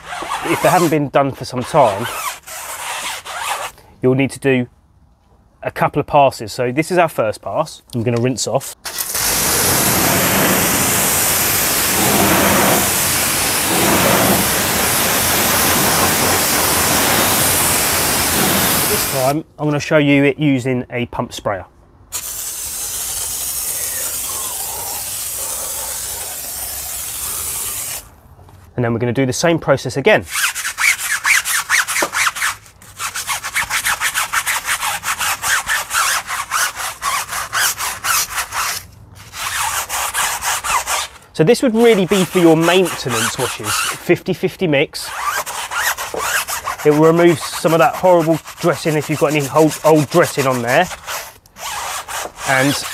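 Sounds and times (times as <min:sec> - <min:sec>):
brush scrubbing rubber tyre: 0:00.0 - 0:01.0, 0:01.7 - 0:03.7, 0:08.8 - 0:19.4, 0:22.2 - 0:28.1, 0:30.4 - 0:44.1, 0:45.0 - 0:52.9
pressure washer spraying: 0:08.8 - 0:19.3, 0:22.2 - 0:28.1.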